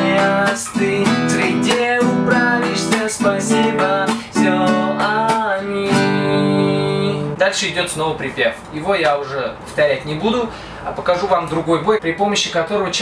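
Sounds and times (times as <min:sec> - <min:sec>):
classical guitar strumming: 0:00.0 - 0:07.4.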